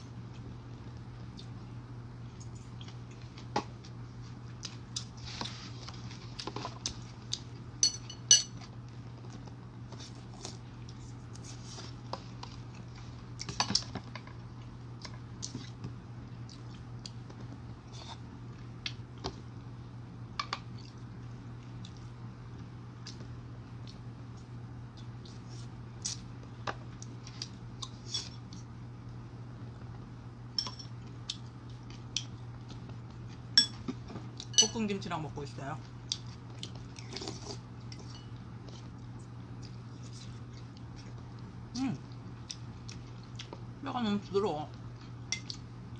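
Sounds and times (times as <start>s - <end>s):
steady low hum: 0.0s - 45.9s
spoon and chopsticks clinking on bowl: 7.8s - 8.6s, 30.6s - 30.9s, 34.5s - 34.8s.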